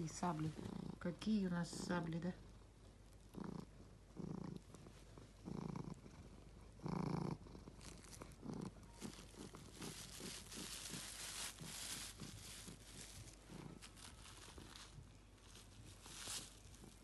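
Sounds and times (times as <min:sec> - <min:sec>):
cat purring: 0:00.0 - 0:17.0
plastic bag crinkling: 0:07.7 - 0:17.0.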